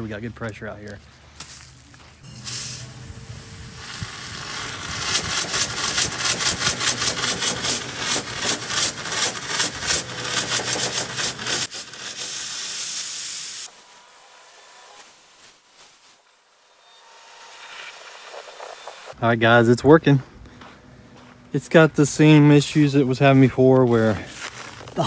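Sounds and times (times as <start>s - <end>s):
low hum: 1.1s - 10.5s, 16.8s - 25.0s
sandblaster hissing and sputtering: 2.2s - 19.2s.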